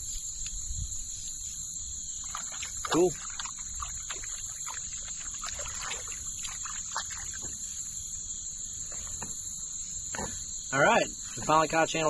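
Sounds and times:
insects droning: 0.0s - 12.0s
short insect chirps: 0.0s - 12.0s
hand splashing in water: 2.2s - 7.4s.

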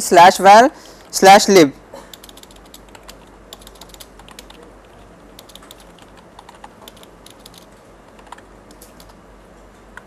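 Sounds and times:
steady low hum: 0.0s - 10.0s
keyboard keys clicking: 2.1s - 9.2s.

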